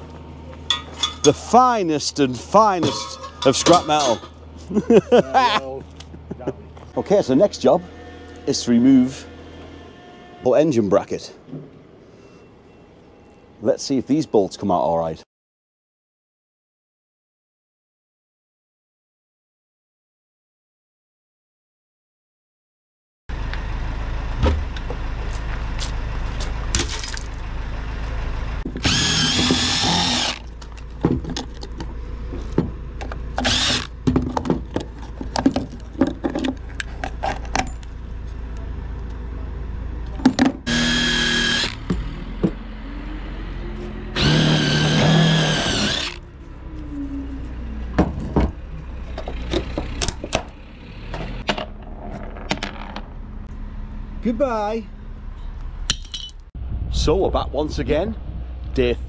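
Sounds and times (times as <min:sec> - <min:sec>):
power driver motor whine: 0:28.6 - 0:30.5, 0:33.3 - 0:34.0, 0:40.7 - 0:42.0, 0:44.1 - 0:46.9.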